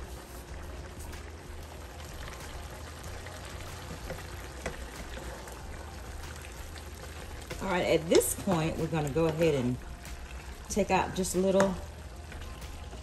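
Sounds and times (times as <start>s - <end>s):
low steady hum: 0.0s - 13.0s
vegetables sizzling in skillet: 0.0s - 13.0s.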